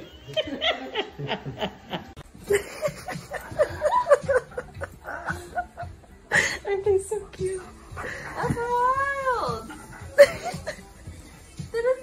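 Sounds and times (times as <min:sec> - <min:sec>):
person laughing: 0:02.5 - 0:06.6, 0:10.1 - 0:10.8.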